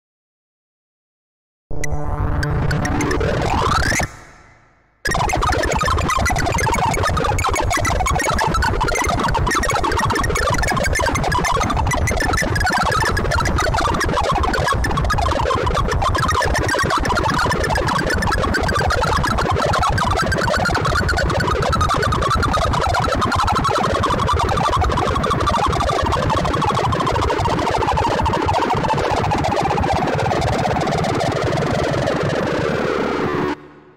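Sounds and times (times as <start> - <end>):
rapid synthesized beeps: 1.7 - 28.8.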